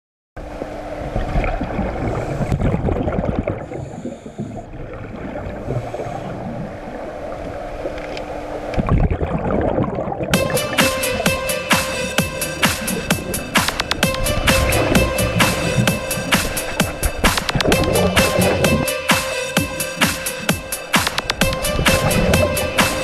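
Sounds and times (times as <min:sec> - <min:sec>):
faint steady hum: 0:00.4 - 0:23.0
underwater breath bubbling: 0:01.1 - 0:23.0
electronic music: 0:10.3 - 0:23.0.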